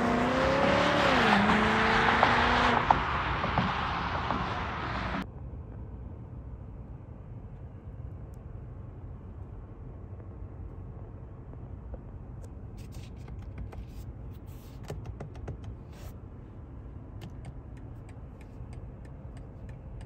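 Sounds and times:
car accelerating: 0.0 - 5.2
low steady rumble: 5.1 - 14.8, 15.7 - 20.0.

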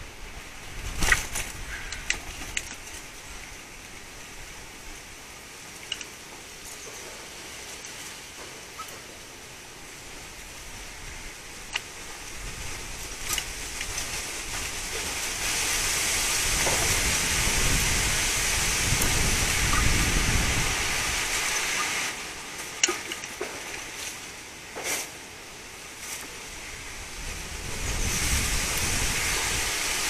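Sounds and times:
wind buffeting microphone: 0.0 - 5.2, 10.1 - 21.8, 26.4 - 30.0
wind gusting through trees: 0.0 - 30.0.

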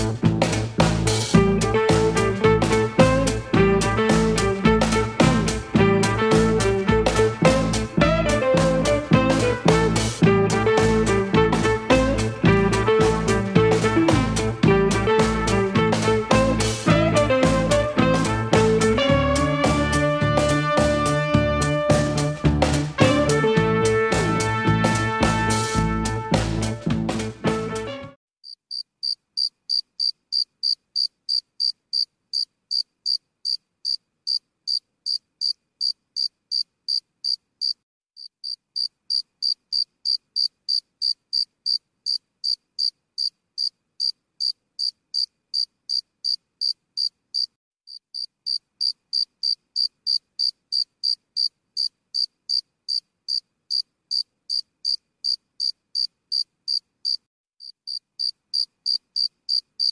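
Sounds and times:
cricket chirping: 28.4 - 59.9.

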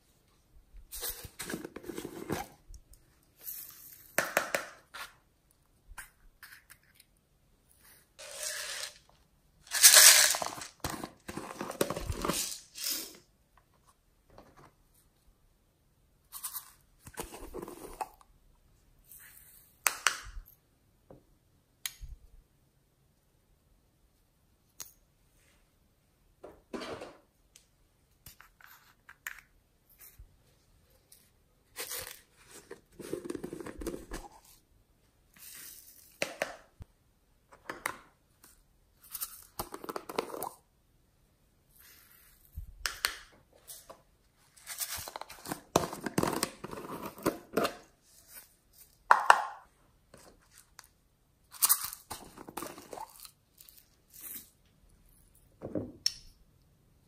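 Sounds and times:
plastic jars rattling: 8.2 - 9.1, 9.7 - 13.2.

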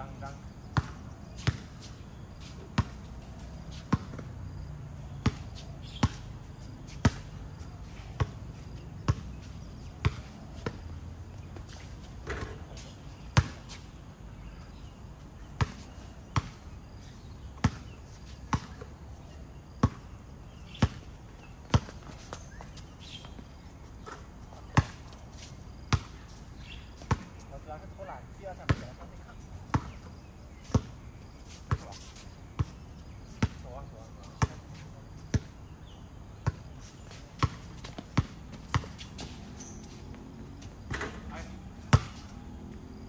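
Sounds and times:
basketball bouncing on hard court: 0.8 - 1.6, 2.8 - 3.0, 3.9 - 4.3, 5.2 - 5.4, 9.1 - 9.3, 10.0 - 10.8, 18.5 - 18.8, 19.8 - 20.0, 24.8 - 25.0, 27.1 - 27.3, 28.7 - 28.9, 29.7 - 30.0, 37.4 - 39.4, 41.9 - 42.3.

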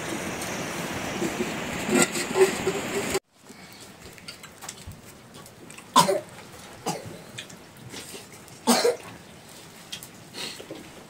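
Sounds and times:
person coughing: 6.0 - 6.2, 6.9 - 7.1, 8.7 - 9.0.

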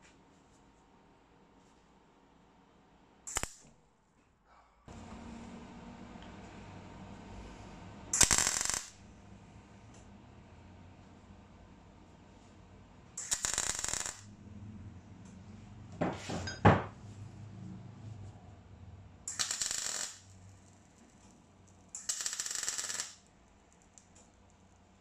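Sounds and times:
welding arc crackling: 3.3 - 3.6, 8.1 - 9.1, 13.2 - 14.3, 19.3 - 20.6, 22.0 - 23.3.

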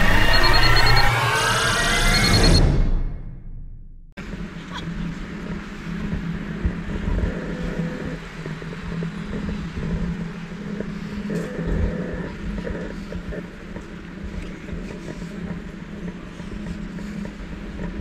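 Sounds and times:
low rumbles and thumps: 2.7 - 18.0
gimbal motors humming: 4.2 - 18.0.

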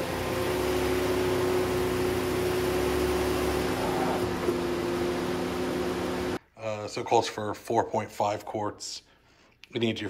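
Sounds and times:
car engine running: 0.0 - 6.4.

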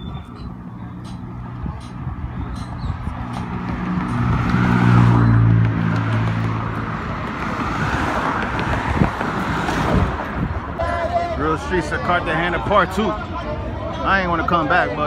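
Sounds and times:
steady traffic and tyre noise: 0.0 - 15.0
car passing by: 3.4 - 10.8.

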